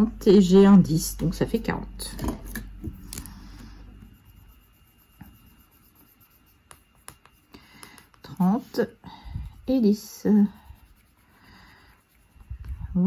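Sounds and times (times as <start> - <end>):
marker rubbing on paper: 4.0 - 8.8, 9.6 - 13.0.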